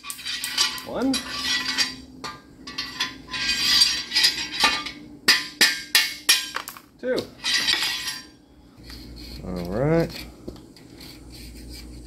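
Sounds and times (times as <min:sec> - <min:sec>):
hammer striking metal extension: 0:03.7 - 0:06.7.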